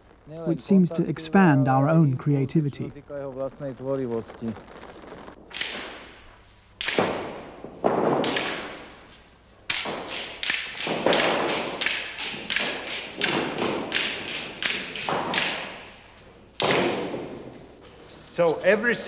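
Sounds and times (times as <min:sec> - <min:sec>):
hard knocks and thuds: 0:06.9 - 0:08.9, 0:16.6 - 0:17.6.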